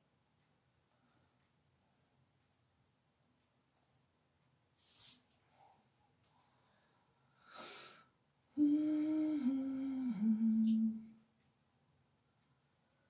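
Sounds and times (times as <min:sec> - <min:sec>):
soft breath hiss: 0:00.0 - 0:13.0
woman humming: 0:08.6 - 0:11.2.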